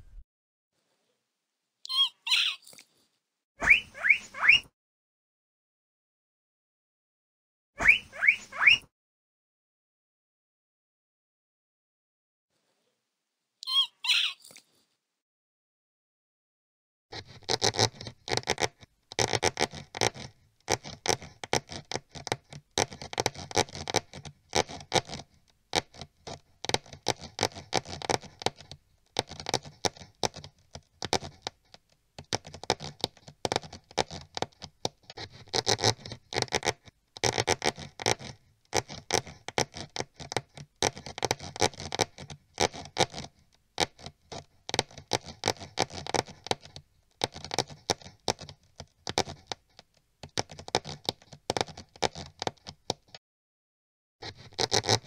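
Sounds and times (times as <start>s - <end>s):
mouse scurrying and scratching: 17.2s - 53.2s, 54.2s - 55.0s.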